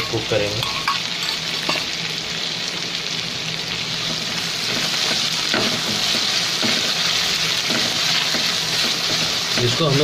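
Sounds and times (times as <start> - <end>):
onions sizzling in hot oil: 0.0 - 10.0
spatula stirring in a pan: 4.1 - 10.0.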